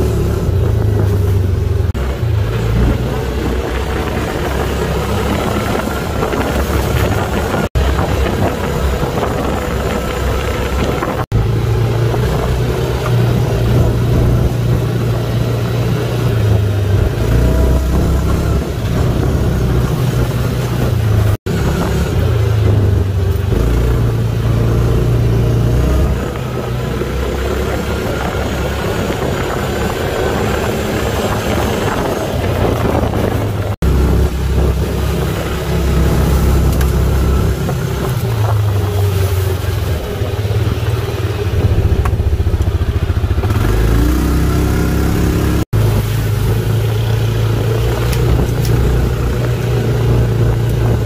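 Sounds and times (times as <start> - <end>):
quad bike engine running: 0.0 - 51.0.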